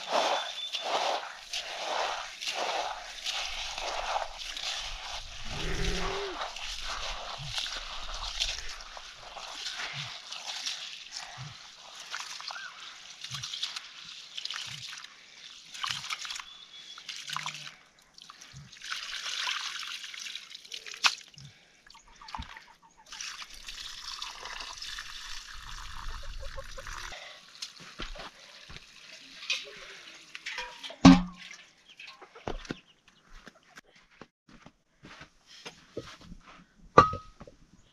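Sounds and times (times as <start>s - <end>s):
water trickling and splashing: 0.0s - 32.7s.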